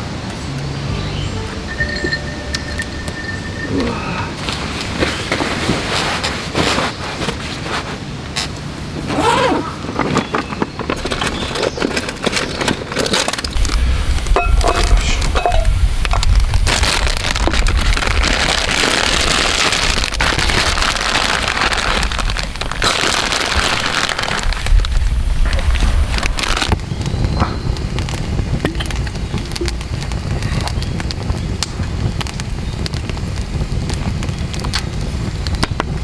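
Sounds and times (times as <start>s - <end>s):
low rumble: 0.0s - 6.2s, 13.5s - 32.2s
plastic bag crinkling: 9.8s - 26.8s
sharp clicks and crackles: 9.8s - 36.0s
leaves dropping into metal cup: 10.2s - 24.6s.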